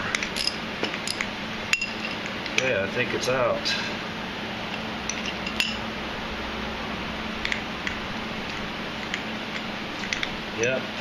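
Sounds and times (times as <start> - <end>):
background hiss and hum: 0.0 - 11.0
metal tool clicks and clinks: 0.1 - 2.7.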